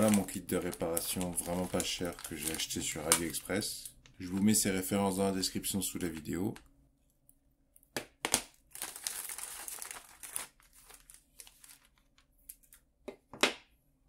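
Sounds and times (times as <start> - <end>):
plastic bag crinkling: 0.0 - 4.8, 8.5 - 12.8.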